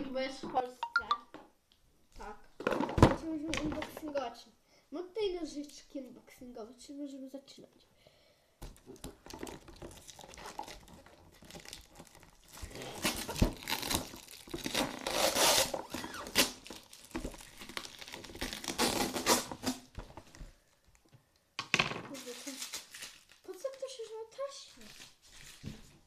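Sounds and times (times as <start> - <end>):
plastic wrapping crinkling and tearing: 8.8 - 20.4, 22.1 - 26.0.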